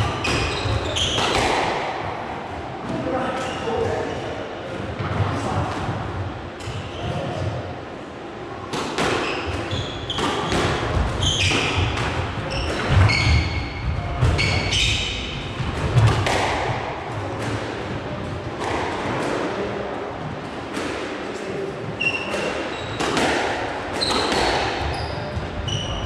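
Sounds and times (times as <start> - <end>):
shoes squeaking on court floor: 0.2 - 1.5, 9.2 - 15.1, 22.0 - 23.2, 24.0 - 26.0.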